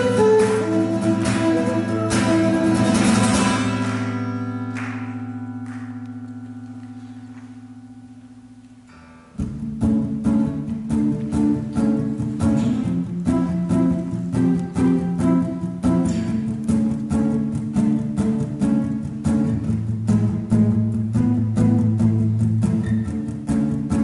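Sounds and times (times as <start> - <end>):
acoustic guitar chord ringing: 0.0 - 10.6
rhythmic guitar strumming: 0.0 - 24.0
soft picked guitar notes: 0.0 - 24.0.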